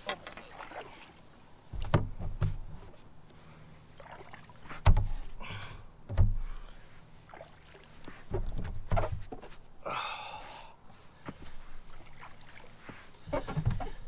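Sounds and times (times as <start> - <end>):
water moving against hull: 0.0 - 5.4, 6.4 - 9.4, 11.4 - 14.0
dull knocks on boat hull: 1.8 - 2.7, 6.1 - 6.4.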